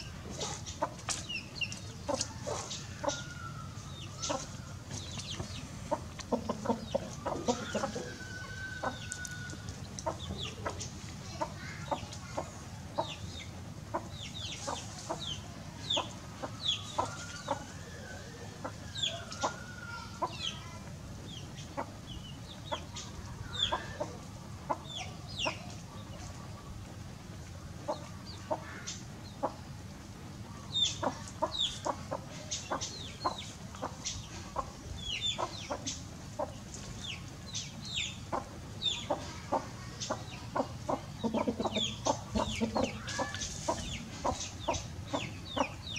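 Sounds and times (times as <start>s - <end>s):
chickens clucking: 0.0s - 45.9s
rooster crowing: 2.5s - 4.8s, 7.5s - 9.6s.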